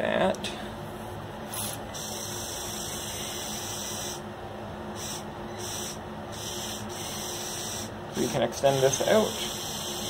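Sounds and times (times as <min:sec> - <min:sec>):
compressed air hissing: 0:01.6 - 0:04.2, 0:05.0 - 0:10.0
small electric motor humming: 0:01.6 - 0:04.2, 0:04.9 - 0:10.0.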